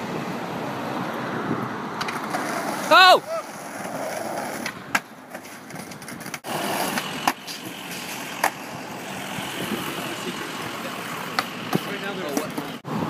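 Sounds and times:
city street traffic: 0.0 - 13.0
skateboard clacking on pavement: 2.0 - 2.9, 3.5 - 7.7, 8.4 - 8.7, 11.3 - 12.8.

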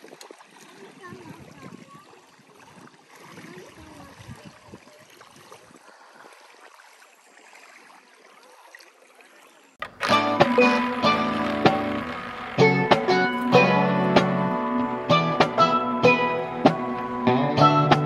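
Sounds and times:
water trickling and gurgling: 0.0 - 9.8
plucked guitar music: 9.8 - 18.0.

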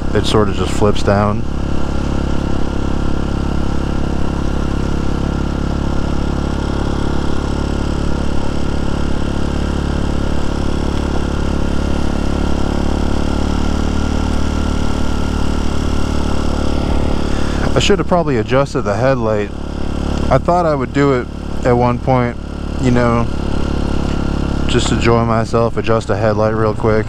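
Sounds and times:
motorcycle engine running: 0.0 - 27.0.

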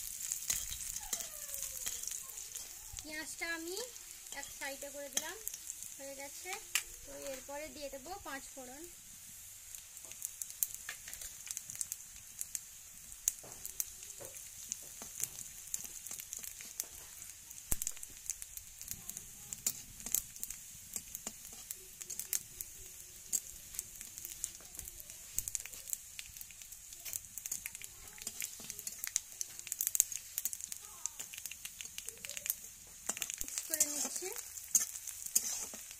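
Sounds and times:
seeds sizzling in hot oil: 0.0 - 35.9
metal spatula scraping pan: 0.3 - 1.2, 4.2 - 5.6, 33.0 - 35.9.

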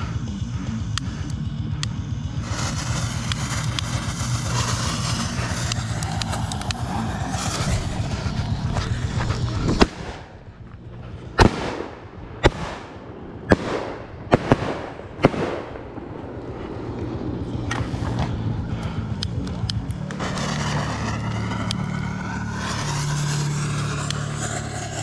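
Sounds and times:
low engine rumble: 0.0 - 25.0
fireworks bangs: 2.4 - 18.4, 20.0 - 25.0.

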